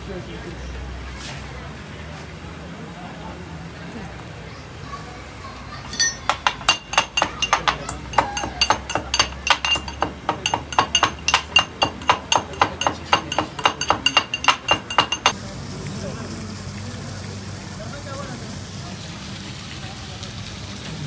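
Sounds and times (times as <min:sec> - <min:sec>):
teaspoon clinking in steel cup: 0:05.9 - 0:15.4.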